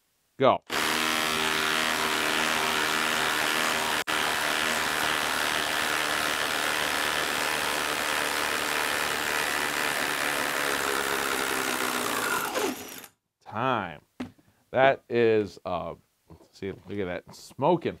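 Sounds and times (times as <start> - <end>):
impact driver hammering: 0.7 - 13.1.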